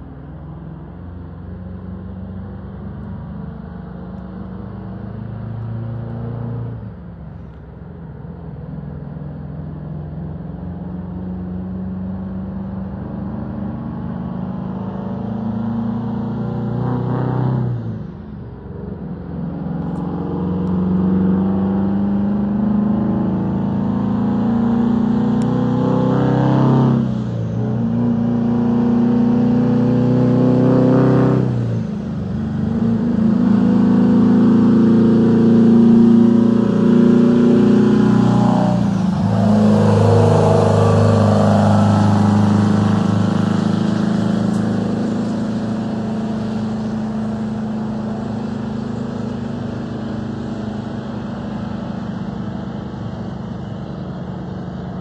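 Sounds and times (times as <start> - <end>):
truck accelerating through gears: 0.0 - 7.3, 7.9 - 55.0.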